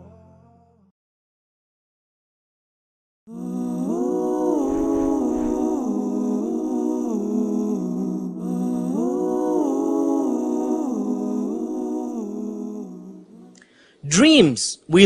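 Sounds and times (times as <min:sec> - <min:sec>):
person humming: 0:03.3 - 0:06.7.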